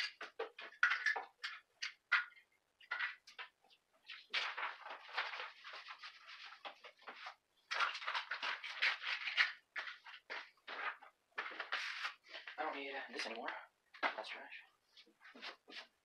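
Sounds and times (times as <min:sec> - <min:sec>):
cables and electronics rustling: 0:00.0 - 0:16.0.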